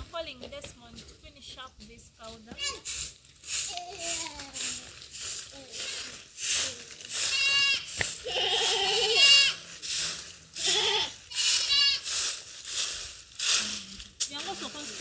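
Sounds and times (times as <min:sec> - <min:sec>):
hand broom sweeping dirt: 0:00.0 - 0:15.0
goat bleating: 0:02.5 - 0:02.9, 0:07.1 - 0:09.6, 0:10.6 - 0:12.1.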